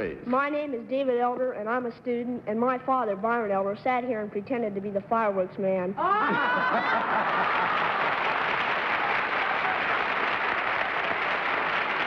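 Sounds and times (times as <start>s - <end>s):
studio audience applauding: 6.4s - 12.0s.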